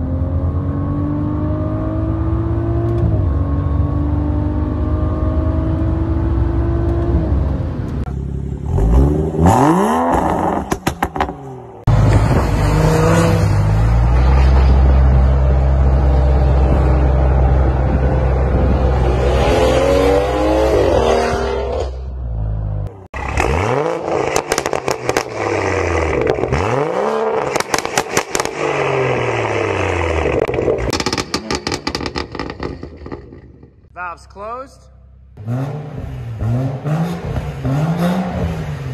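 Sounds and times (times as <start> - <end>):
car engine revving: 0.0 - 33.9, 35.1 - 38.9
loud car exhaust driving by: 3.4 - 33.7
exhaust crackles and pops: 27.3 - 29.3, 30.0 - 34.0.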